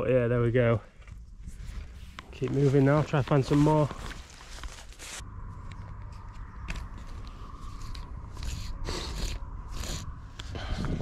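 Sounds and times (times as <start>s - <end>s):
steady low rumble: 0.0s - 11.0s
footsteps crunching through dry reeds: 1.6s - 8.8s.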